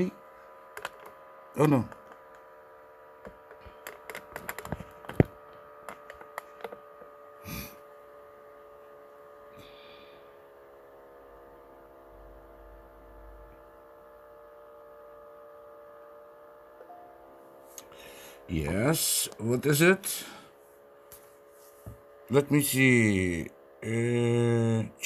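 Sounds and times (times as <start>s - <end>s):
laptop cooling fan whining: 0.0s - 25.0s
sharp clicks and knocks: 0.8s - 1.2s, 3.2s - 7.1s.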